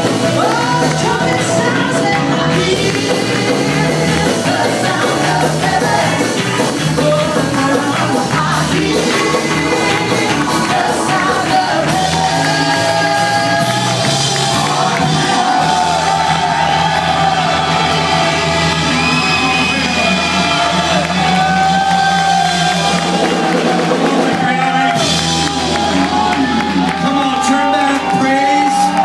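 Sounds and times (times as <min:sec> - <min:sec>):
congregation singing and shouting: 0:00.0 - 0:29.0
worship band with keyboard: 0:00.0 - 0:29.0.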